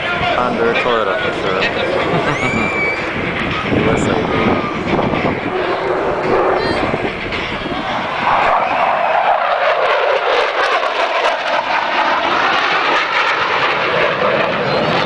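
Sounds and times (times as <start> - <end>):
fighter jet roaring past: 0.0 - 15.0.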